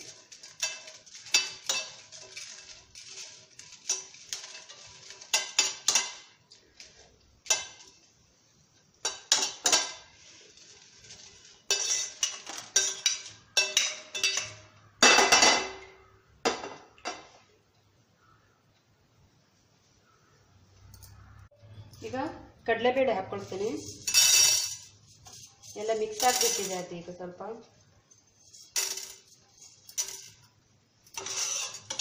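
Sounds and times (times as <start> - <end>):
metal spoon scraping in pan: 0.0 - 8.1, 9.0 - 15.0, 23.3 - 26.9, 28.1 - 32.0
scraping onto steel plate: 31.1 - 32.0.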